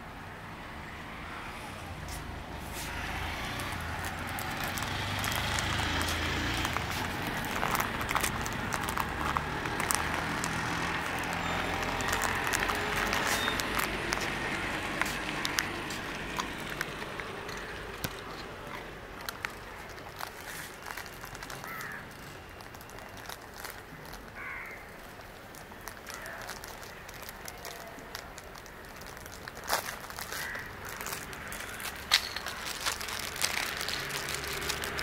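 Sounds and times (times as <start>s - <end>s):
traffic noise: 0.0s - 35.0s.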